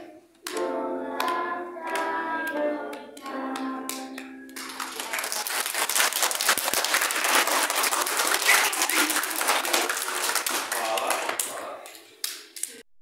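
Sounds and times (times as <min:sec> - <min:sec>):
children applauding: 0:04.6 - 0:11.8.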